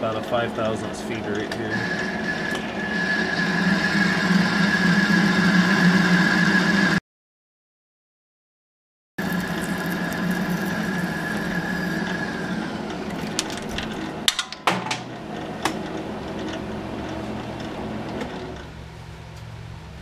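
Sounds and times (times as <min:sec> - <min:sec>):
metal lathe running: 0:00.0 - 0:07.0, 0:09.2 - 0:18.7
high tone of tool cutting: 0:01.7 - 0:07.0, 0:09.3 - 0:13.5.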